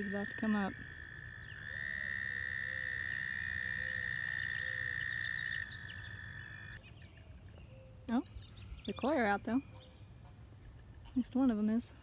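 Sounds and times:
fainter frog trills: 0.0s - 6.8s
frog high-pitched trill: 1.5s - 6.8s.

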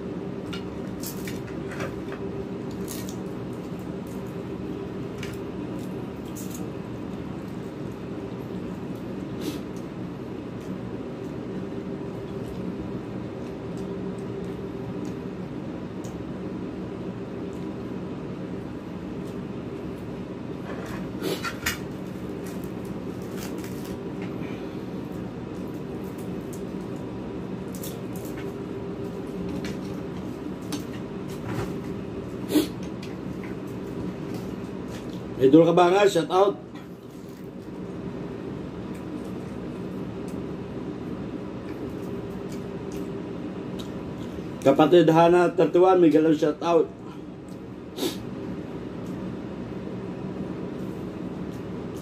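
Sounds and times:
appliance low hum: 0.0s - 52.0s.

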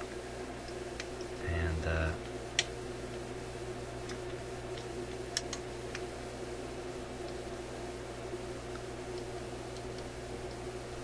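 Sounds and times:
steady low hum: 0.0s - 11.0s
small sharp clicks: 4.0s - 6.1s.

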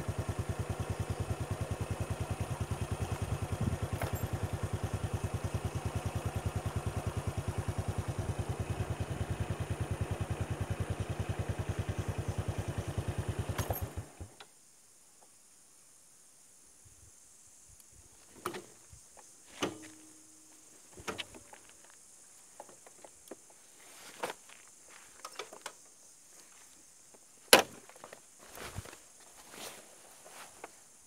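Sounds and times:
scuffs and knocks: 27.5s - 30.8s.

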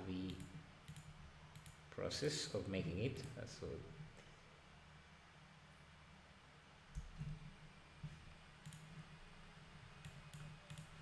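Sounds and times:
computer mouse clicks: 0.3s - 1.8s, 8.6s - 9.0s, 10.0s - 11.0s.

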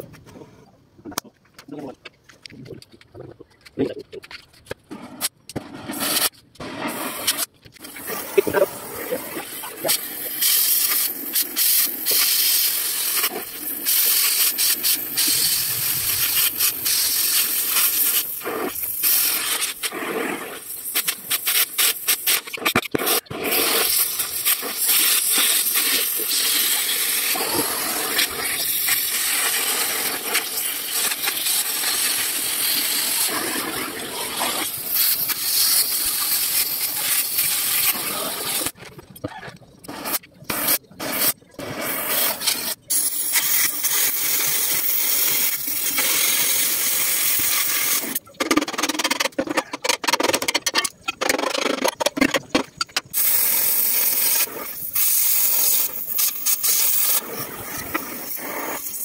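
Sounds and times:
cutting torch hissing: 4.9s - 38.8s, 39.8s - 48.2s, 53.1s - 59.0s.

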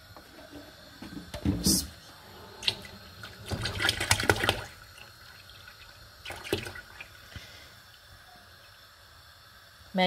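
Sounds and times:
milk pouring into pot: 2.0s - 9.8s.

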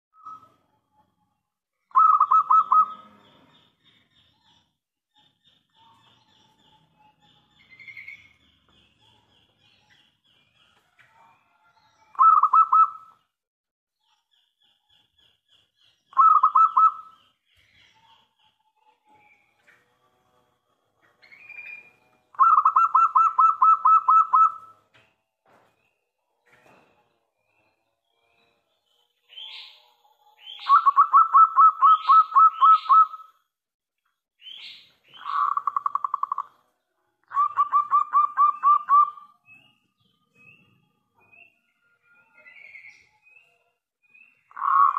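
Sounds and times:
dove cooing: 1.9s - 3.1s, 12.1s - 13.0s, 16.2s - 17.0s.

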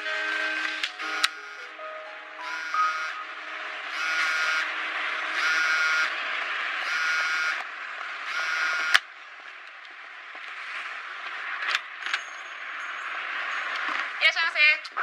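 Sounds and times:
phone vibrating: 0.0s - 4.7s, 5.3s - 6.2s, 6.8s - 7.6s, 8.2s - 9.0s
street ambience: 0.0s - 15.0s.

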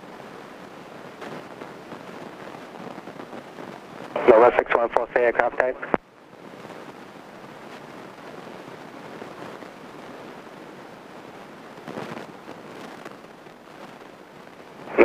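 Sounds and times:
airplane cabin noise hiss: 0.1s - 15.0s
faint voice over intercom: 4.2s - 6.0s.

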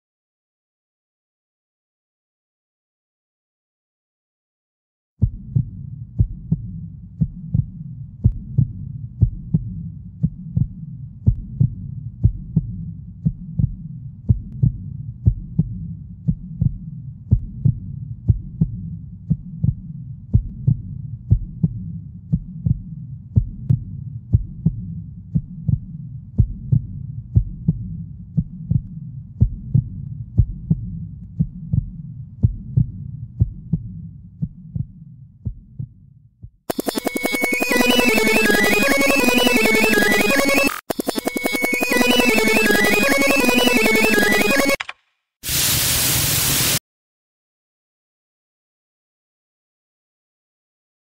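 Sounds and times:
deep thumping beat: 5.2s - 44.8s.

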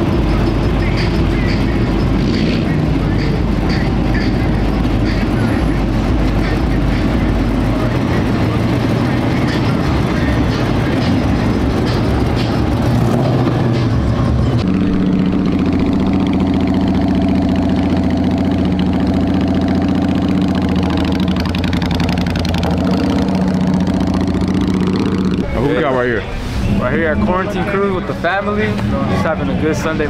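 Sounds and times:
vehicle engine noise: 0.0s - 30.0s
motorcycle engine passing by: 14.5s - 25.8s.

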